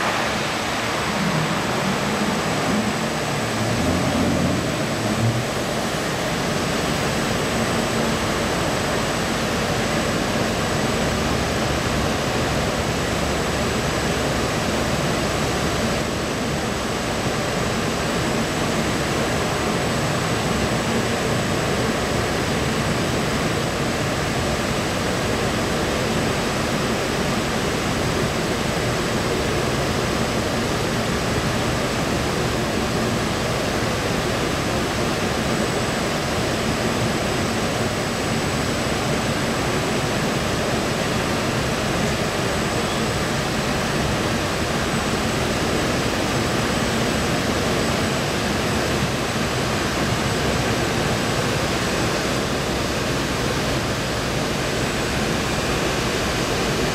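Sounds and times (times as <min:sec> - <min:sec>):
high whine: 0:00.0 - 0:07.5
washing machine running: 0:00.0 - 0:56.9.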